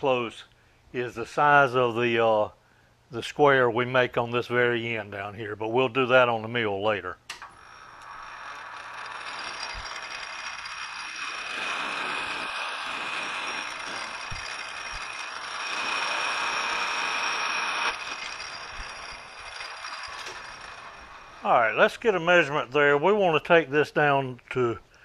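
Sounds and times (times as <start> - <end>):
metal lathe cutting with whine: 7.5 - 21.5.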